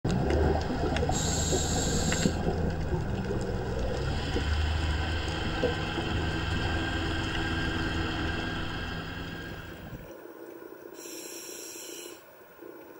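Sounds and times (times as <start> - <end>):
exhaled bubbles rumbling: 0.0 - 10.1
regulator inhale hiss: 1.1 - 2.5, 11.0 - 12.3.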